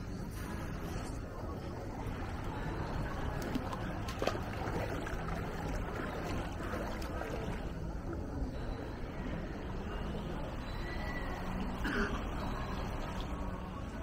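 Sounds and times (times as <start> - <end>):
low outdoor rumble: 0.0 - 10.6.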